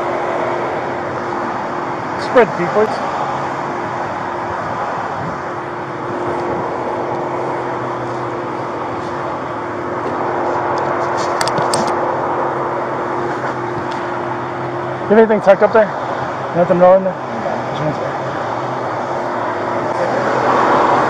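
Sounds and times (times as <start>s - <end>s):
vehicle engine hum: 0.0s - 21.0s.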